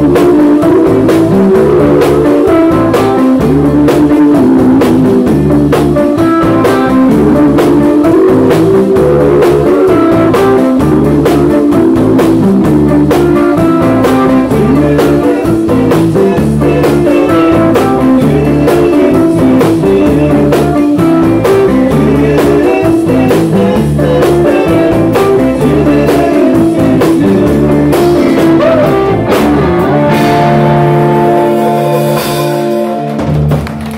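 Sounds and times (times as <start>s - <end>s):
drum kit beat: 0.0s - 33.9s
electric guitars: 0.0s - 33.9s.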